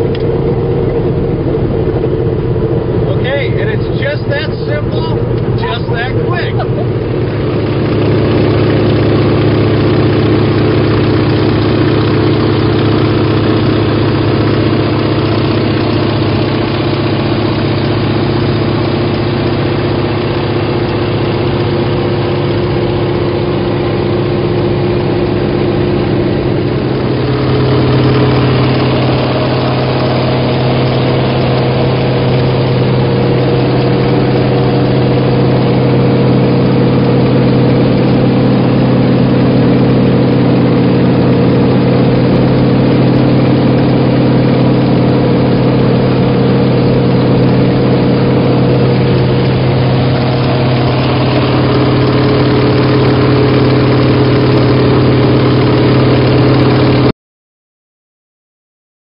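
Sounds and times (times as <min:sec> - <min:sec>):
radial engine and propeller: 0:00.0 - 0:57.1.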